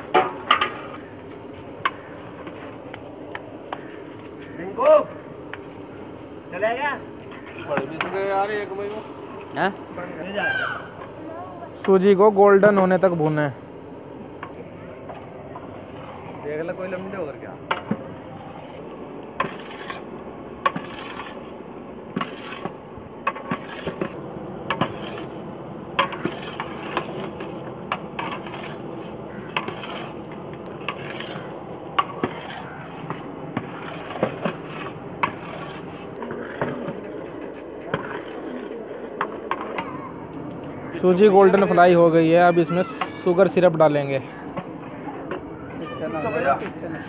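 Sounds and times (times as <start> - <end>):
metal stirrer scraping pot: 18.4 - 21.5, 22.2 - 25.4, 26.0 - 38.7.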